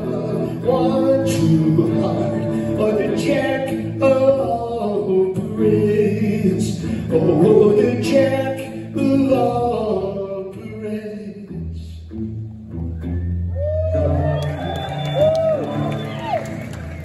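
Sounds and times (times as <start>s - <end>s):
strummed acoustic guitar: 0.0s - 10.9s
man singing: 0.0s - 12.1s.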